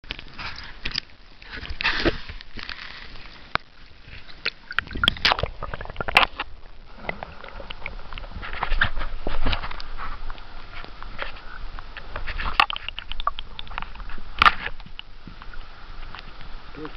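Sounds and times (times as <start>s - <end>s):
water sloshing and gurgling: 0.0s - 16.9s.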